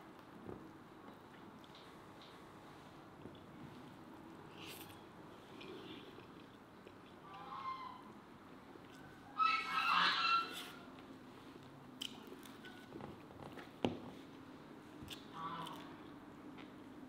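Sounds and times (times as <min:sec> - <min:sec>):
poultry calling: 0:07.3 - 0:08.1, 0:09.3 - 0:10.9.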